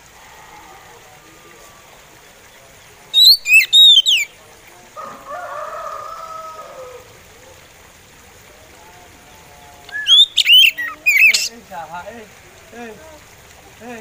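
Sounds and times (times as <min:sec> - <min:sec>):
faint low drawn-out call: 0:00.0 - 0:14.0
bird singing whistled notes: 0:03.1 - 0:04.4, 0:09.9 - 0:11.5.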